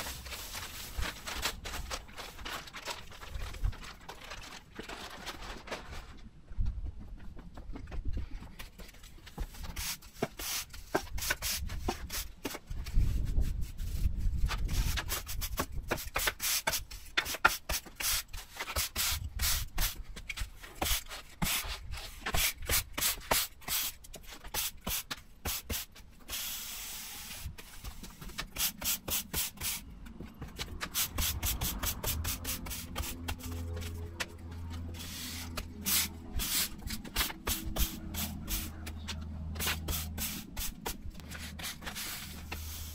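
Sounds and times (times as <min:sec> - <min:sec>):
broom sweeping sand on paving: 0:09.7 - 0:20.0, 0:20.8 - 0:28.0, 0:30.8 - 0:34.0, 0:34.9 - 0:38.8, 0:39.6 - 0:42.9.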